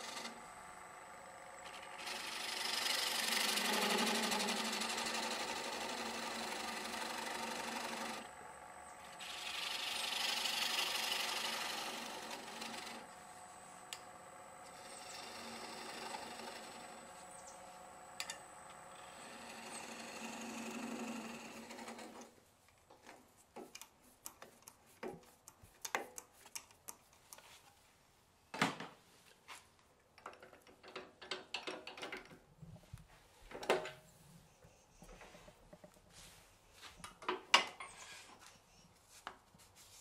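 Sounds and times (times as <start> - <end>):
wood lathe cutting: 0.0 - 22.2.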